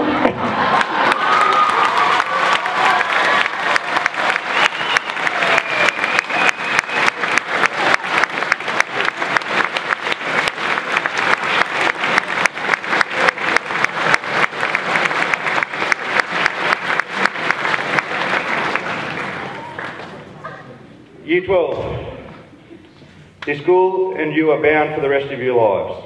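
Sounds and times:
audience applause: 0.4 - 20.3.

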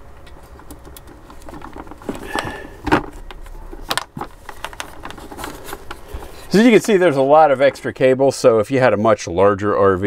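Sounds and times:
low steady hum: 0.0 - 10.0
cables rattling in wooden cabinet: 0.5 - 7.0.

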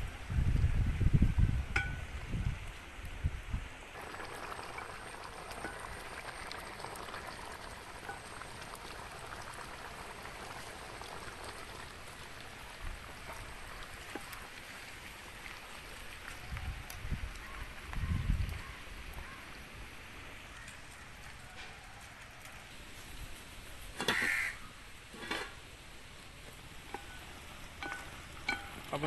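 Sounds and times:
gravy bubbling in a pot: 3.9 - 19.6, 25.1 - 29.0.

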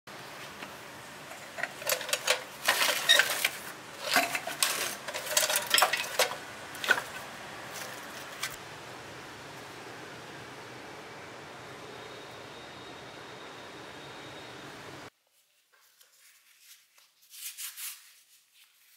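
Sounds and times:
scrap metal clinking: 1.2 - 8.6.

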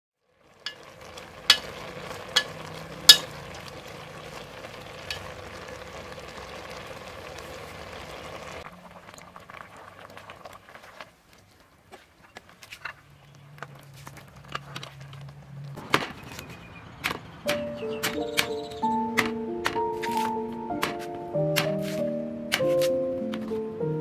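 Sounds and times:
food sizzling in a pot: 0.2 - 10.5
spatula knocking against pot: 1.5 - 3.3.

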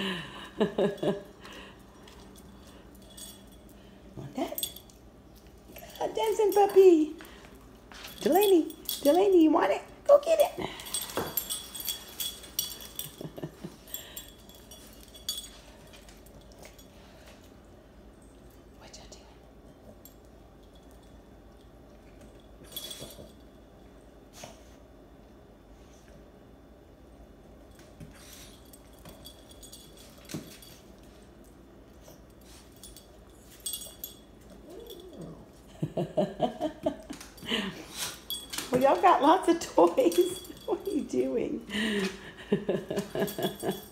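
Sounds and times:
light metallic clinking: 0.6 - 17.5, 19.8 - 24.0, 27.6 - 43.9
small dog whining and grunting: 34.6 - 35.5.

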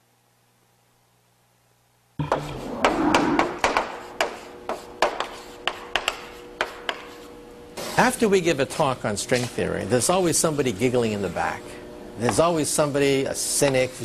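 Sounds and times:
chalk tapping on blackboard: 2.3 - 7.3
chalk scratching strokes: 2.4 - 7.4.

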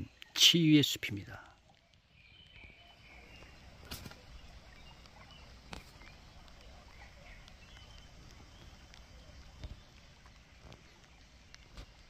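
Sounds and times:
bird chirps: 1.8 - 11.2.

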